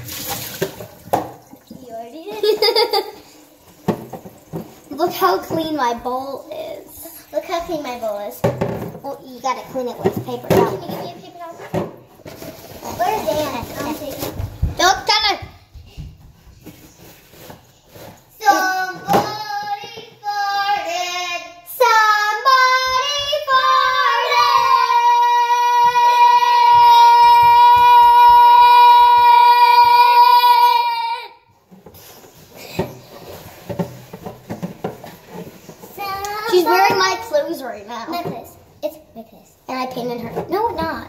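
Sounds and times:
girl singing: 18.4 - 31.3.

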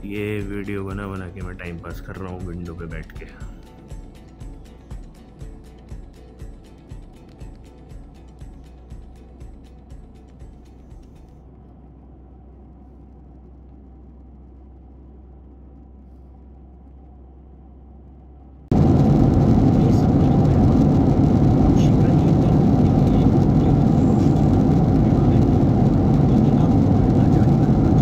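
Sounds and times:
airliner cabin hum: 0.0 - 28.0
rough vehicle rumble: 0.0 - 28.0.

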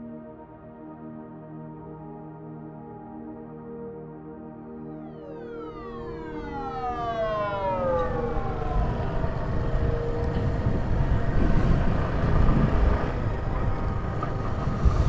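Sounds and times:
falling pitch sweep: 4.6 - 15.0
motorcycle wind and road noise: 7.7 - 15.0.

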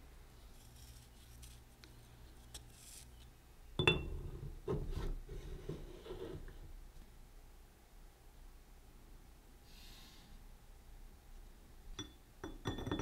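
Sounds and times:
faint scratching: 0.4 - 3.3, 4.8 - 6.7.

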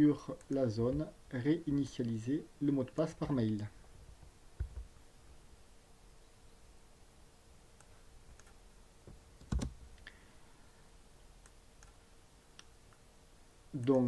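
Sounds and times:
faint electrical hum: 0.0 - 14.0
computer mouse and key clicks: 7.8 - 8.6, 9.4 - 9.8, 11.4 - 12.0.

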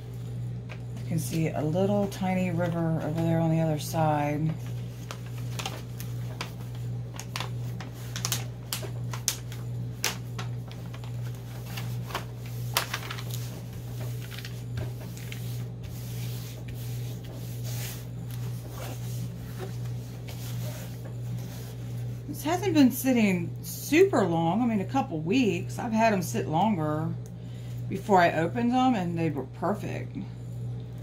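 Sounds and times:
steady low hum: 0.0 - 31.0
paper and plastic crinkling: 4.4 - 21.9.

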